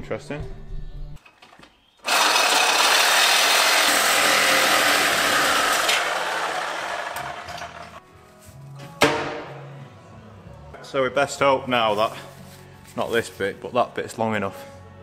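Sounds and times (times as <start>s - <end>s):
power tool cutting metal pipe: 2.0s - 8.0s.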